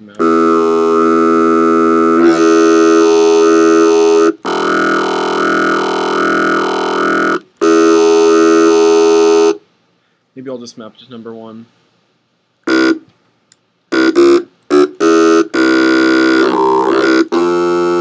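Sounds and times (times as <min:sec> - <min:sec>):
distorted synth bass notes: 0:00.2 - 0:09.6, 0:12.7 - 0:13.0, 0:13.9 - 0:18.0.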